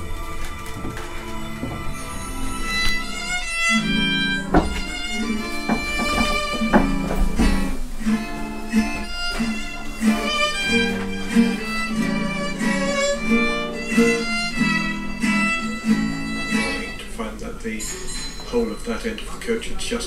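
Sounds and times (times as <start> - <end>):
fiddle melody: 0.0 - 17.8
plucked guitar: 0.0 - 19.7.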